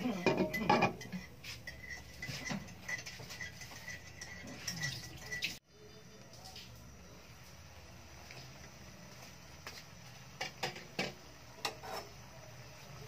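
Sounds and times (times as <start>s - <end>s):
meat simmering with ticking and popping: 0.0s - 13.0s
glass lid clattering on pot: 0.2s - 1.3s.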